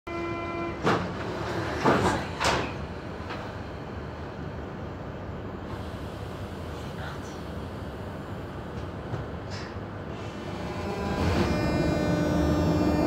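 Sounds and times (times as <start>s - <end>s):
train carriage low hum: 0.1s - 13.0s
sliding doors shutting: 9.5s - 13.0s
door-closing warning buzzer: 10.6s - 13.0s.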